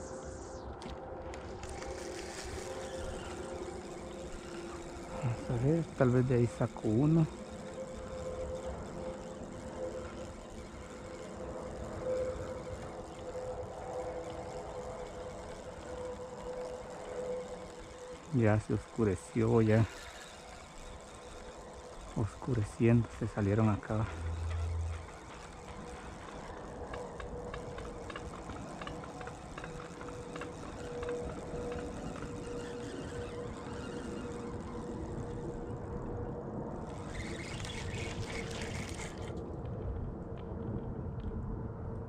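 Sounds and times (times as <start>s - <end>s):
fishing reel ticking: 0.0s - 39.4s
steady mechanical hum: 0.0s - 42.0s
low rumble: 23.2s - 26.0s.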